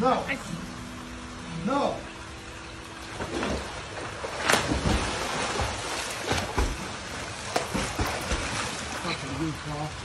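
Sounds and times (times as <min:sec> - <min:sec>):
pool water sloshing: 0:00.3 - 0:10.0
dog splashing into pool: 0:03.2 - 0:09.0.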